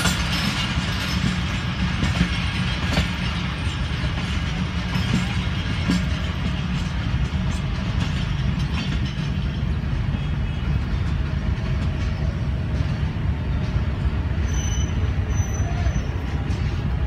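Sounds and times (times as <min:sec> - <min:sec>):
train rolling on track: 0:00.0 - 0:17.0.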